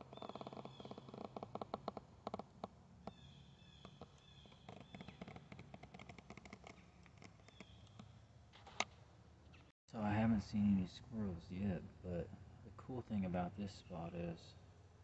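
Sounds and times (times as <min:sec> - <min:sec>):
high bird calls: 0:00.0 - 0:01.4, 0:03.0 - 0:05.5.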